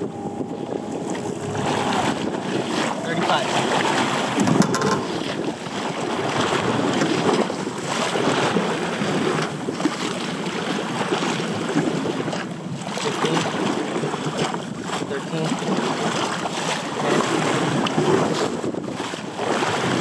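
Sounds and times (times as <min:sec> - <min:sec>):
water splashing against boat hull: 0:00.0 - 0:20.0
wind buffeting the microphone: 0:00.0 - 0:20.0.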